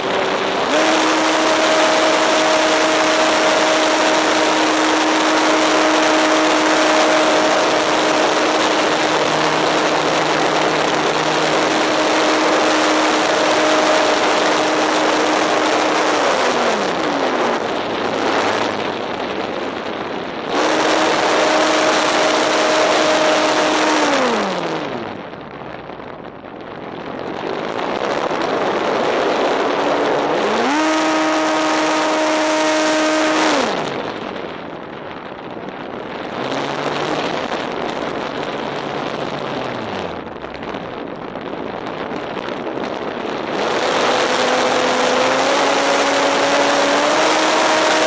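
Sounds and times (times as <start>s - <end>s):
electric motor and propeller whine: 0.0s - 25.2s, 27.6s - 34.3s, 42.8s - 48.0s
wind rush on microphone: 0.0s - 48.0s.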